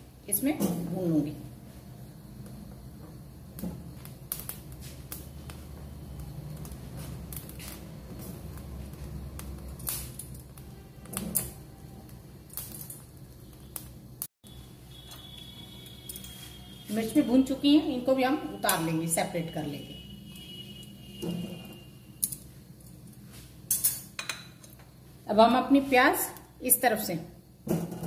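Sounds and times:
gas burner flame rumble: 0.0s - 14.3s
chillies crackling on grill: 0.3s - 24.0s.

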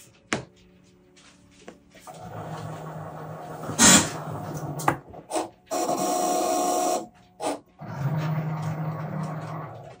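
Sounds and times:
machine whine: 2.1s - 10.0s.

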